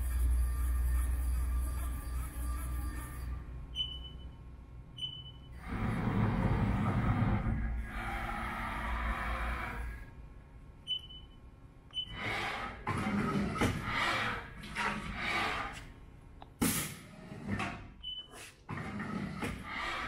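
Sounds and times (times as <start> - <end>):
steady low hum: 0.0 - 18.3
control panel beeps: 3.8 - 4.4, 5.0 - 5.5, 10.9 - 12.1.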